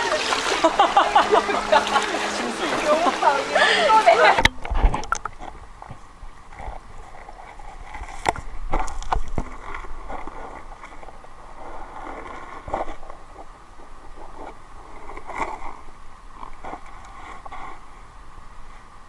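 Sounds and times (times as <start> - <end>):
underwater stream rush: 0.0 - 19.0
underwater clicks and knocks: 4.3 - 6.0, 8.0 - 9.8.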